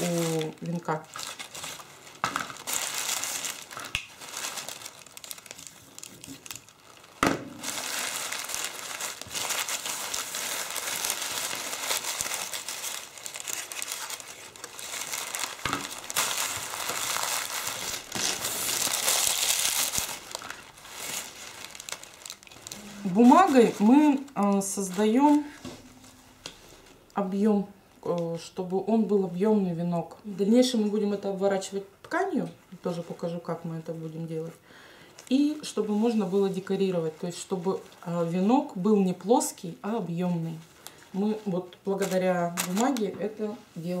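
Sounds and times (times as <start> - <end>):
paper crinkling: 0.0 - 27.0, 40.4 - 43.5.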